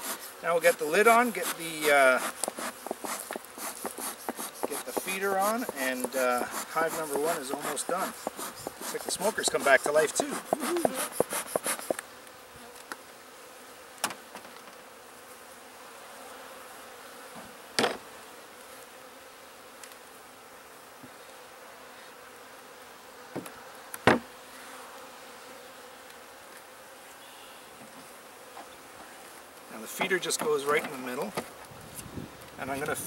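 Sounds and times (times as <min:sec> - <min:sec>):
bees buzzing: 0:00.0 - 0:33.0
sharp wooden knocks: 0:02.2 - 0:12.0, 0:24.0 - 0:24.2.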